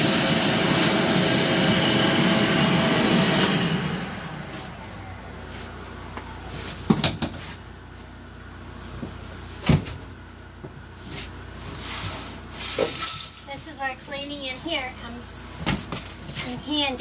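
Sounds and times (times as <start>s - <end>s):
wooden boards knocking and thumping: 6.9s - 7.4s.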